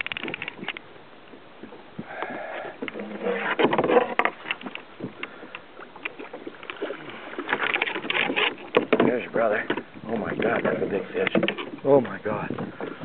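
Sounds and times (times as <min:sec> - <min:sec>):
light clicks and knocks: 0:02.8 - 0:13.0.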